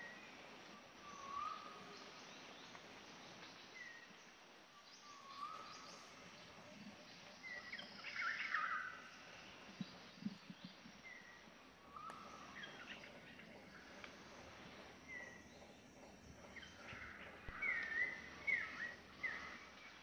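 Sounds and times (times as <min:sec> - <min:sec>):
faint steady hiss: 0:00.0 - 0:20.0
birds chirping: 0:04.9 - 0:20.0.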